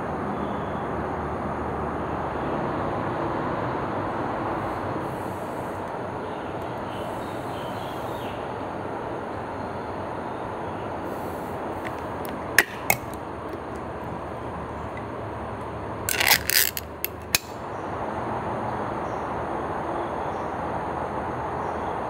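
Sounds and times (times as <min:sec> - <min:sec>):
steady background noise: 0:00.0 - 0:22.0
container clicks: 0:11.8 - 0:13.9, 0:16.1 - 0:17.6
scraping and clinking: 0:11.8 - 0:13.9, 0:16.1 - 0:17.5.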